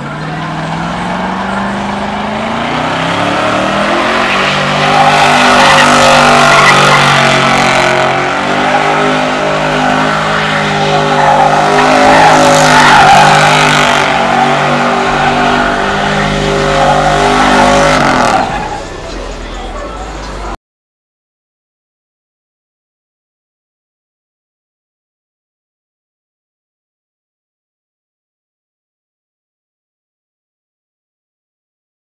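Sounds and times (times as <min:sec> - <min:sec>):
car engine revving: 0:00.0 - 0:20.6
tire screech: 0:00.0 - 0:20.6.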